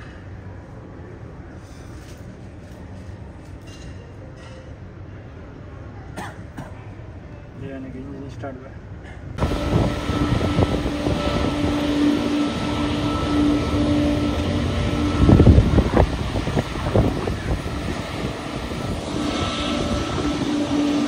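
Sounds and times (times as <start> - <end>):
jet engines running: 9.4 - 21.0
wind gusts on microphone: 9.4 - 21.0.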